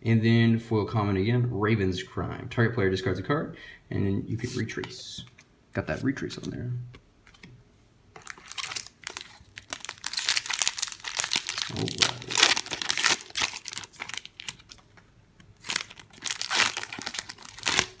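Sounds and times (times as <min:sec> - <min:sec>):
foil wrapper crinkling: 0:08.2 - 0:14.9, 0:15.6 - 0:18.0.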